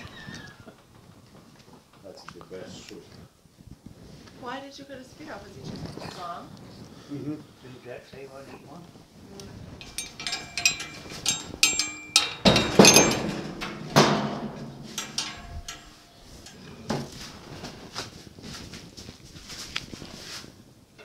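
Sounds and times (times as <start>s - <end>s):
metal clinking and clanking: 9.7s - 17.5s
heavy knocks: 9.8s - 17.2s.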